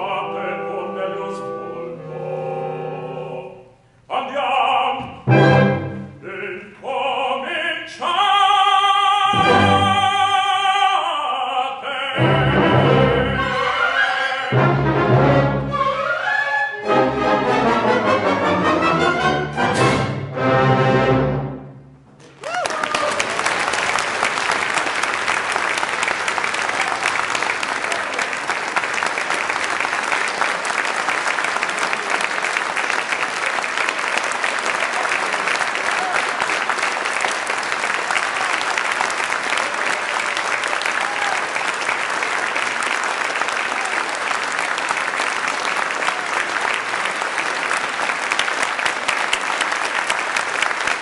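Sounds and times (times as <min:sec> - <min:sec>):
audience applauding: 0:22.2 - 0:51.0.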